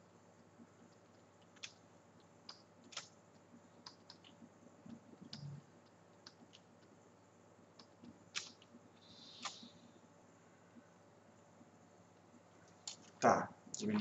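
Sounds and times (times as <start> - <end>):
computer mouse clicks: 0.8 - 7.0, 7.8 - 9.8, 12.6 - 13.2.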